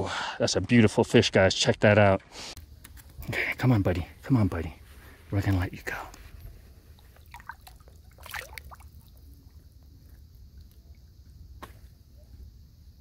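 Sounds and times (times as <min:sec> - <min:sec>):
water trickling and splashing: 0:06.7 - 0:11.1.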